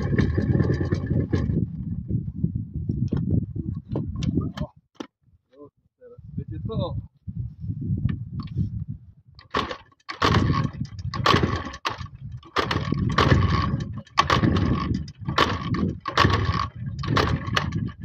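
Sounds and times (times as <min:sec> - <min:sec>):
motorcycle being kickstarted: 0:00.0 - 0:01.7, 0:09.4 - 0:18.0.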